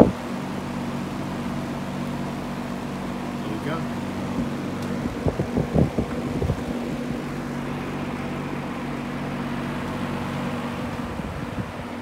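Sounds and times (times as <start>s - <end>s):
electric fan running: 0.0s - 12.0s
low thumps: 4.3s - 7.2s.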